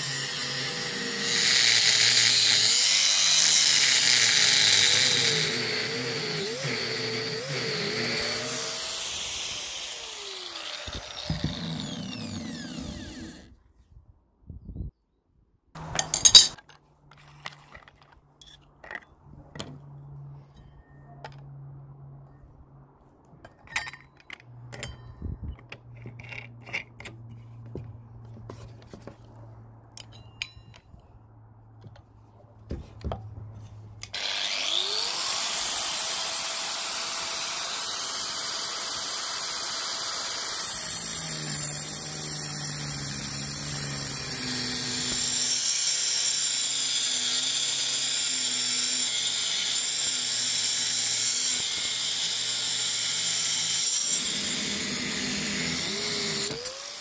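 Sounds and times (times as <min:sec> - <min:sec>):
angle grinder spinning up: 0:00.0 - 0:13.5, 0:15.8 - 0:16.6, 0:34.2 - 0:36.8
grinder cutting steel: 0:00.0 - 0:13.5, 0:15.8 - 0:16.6, 0:34.0 - 0:57.0.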